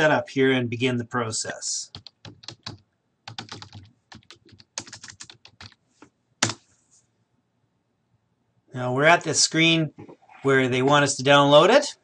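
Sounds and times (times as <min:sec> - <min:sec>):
typing on computer keyboard: 0:01.9 - 0:05.8.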